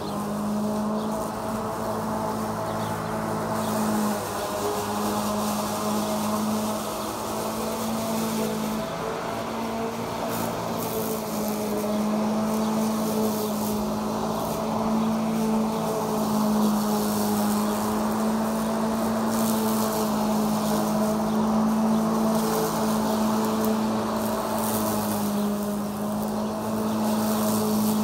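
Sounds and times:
electric lawn mower running: 0:00.0 - 0:28.0.

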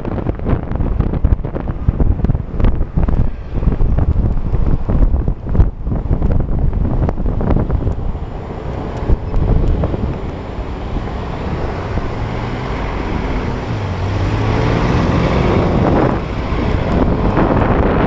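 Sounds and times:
car traffic: 0:00.0 - 0:18.0
wind rushing over microphone: 0:00.0 - 0:18.0
scooter engine: 0:06.8 - 0:18.0.

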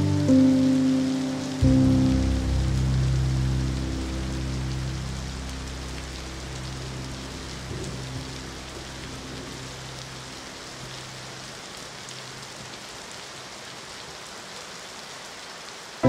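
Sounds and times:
low sustained music notes: 0:00.0 - 0:11.6
steady rain patter: 0:00.0 - 0:16.0.

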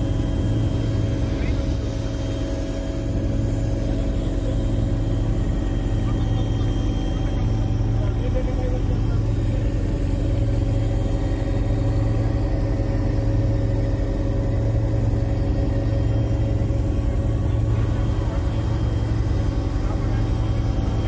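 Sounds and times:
faint high whine: 0:00.0 - 0:21.0
helicopter engine and rotor drone: 0:00.0 - 0:21.0.

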